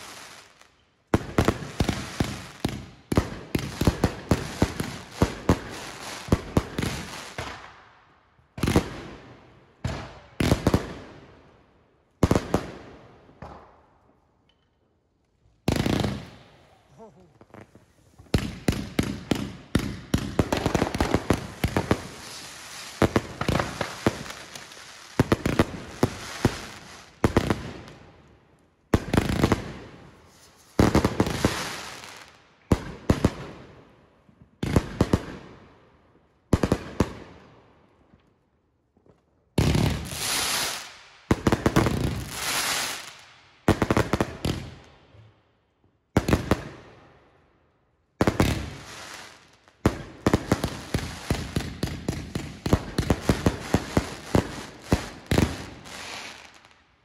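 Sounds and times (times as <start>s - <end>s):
fireworks crackling: 0.0s - 7.7s, 15.6s - 28.0s, 29.0s - 32.4s, 39.6s - 44.8s, 48.2s - 56.7s
fireworks bangs: 15.6s - 27.9s.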